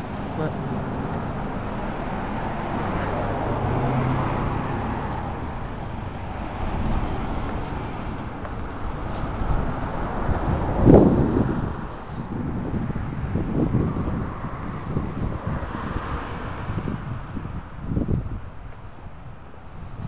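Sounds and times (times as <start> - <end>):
car driving past: 0.0 - 11.5
street traffic: 0.0 - 20.0.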